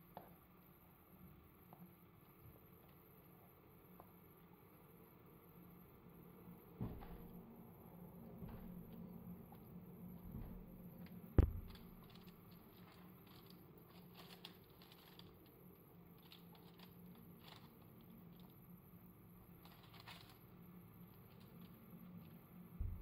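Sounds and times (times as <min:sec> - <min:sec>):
sharp knock: 0:11.4 - 0:11.8.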